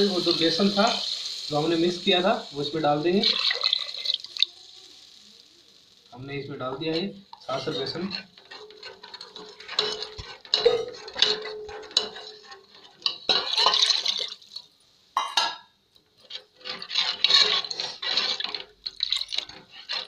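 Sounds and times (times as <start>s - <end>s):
liquid sloshing in a pot: 3.2s - 4.5s, 7.3s - 14.7s, 16.1s - 20.0s
ladle scraping a metal pot: 6.6s - 14.4s, 16.1s - 20.0s.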